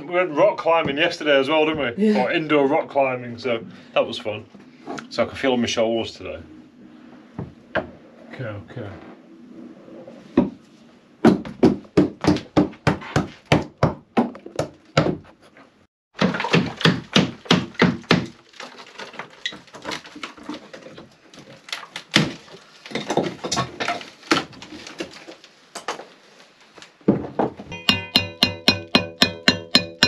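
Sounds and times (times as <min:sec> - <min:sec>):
hammer blows on timber: 0:27.8 - 0:30.0.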